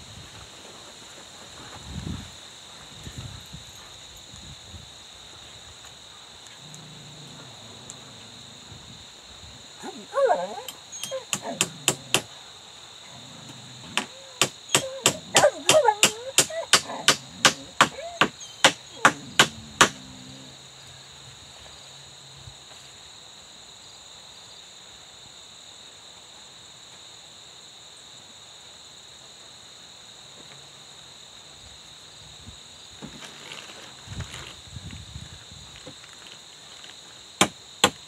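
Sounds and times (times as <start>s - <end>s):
high insect drone: 0.0s - 38.0s
hammer striking nail into log: 14.0s - 20.0s, 37.4s - 38.0s.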